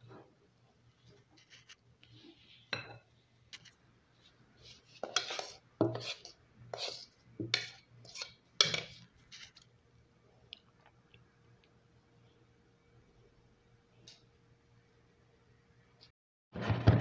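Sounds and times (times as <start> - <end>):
metal spoon scraping a bowl: 4.6 - 9.6.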